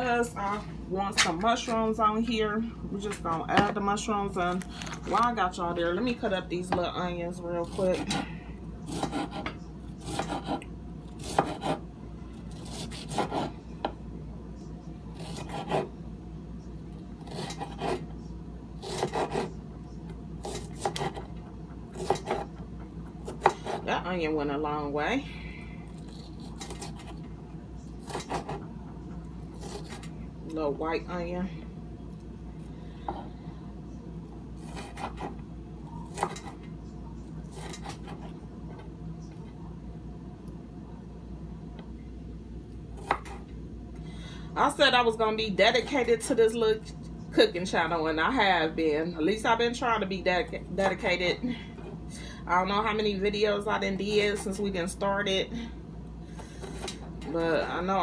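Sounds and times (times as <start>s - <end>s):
steady low hum: 0.0s - 58.0s
knife chopping on wooden board: 8.9s - 10.6s, 11.2s - 11.8s, 18.8s - 19.5s, 20.4s - 21.3s, 34.6s - 35.3s, 43.0s - 43.4s.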